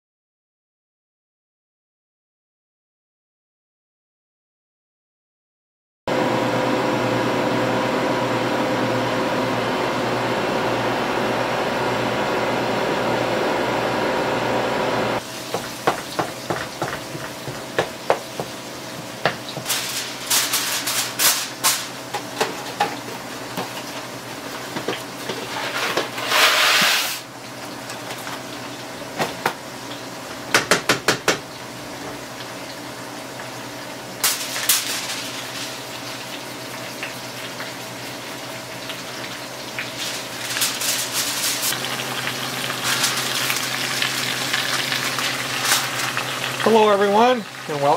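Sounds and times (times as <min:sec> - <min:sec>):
freeze dryer humming: 0:06.1 - 0:47.9
potatoes frying: 0:15.2 - 0:47.9
spatula scraping skillet: 0:15.3 - 0:27.2, 0:39.8 - 0:41.8.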